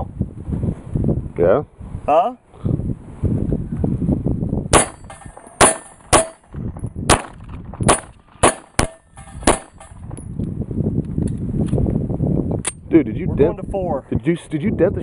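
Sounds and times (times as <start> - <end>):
pistol shots: 4.7 - 6.4, 7.1 - 10.0
steel plate target ringing: 4.7 - 6.5, 7.9 - 10.0.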